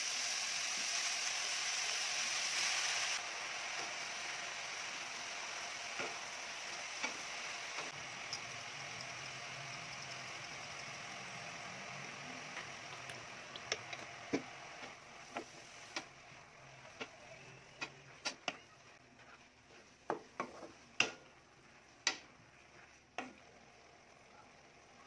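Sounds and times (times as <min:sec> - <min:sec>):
wooden spatula scraping a wok: 0:16.9 - 0:21.0.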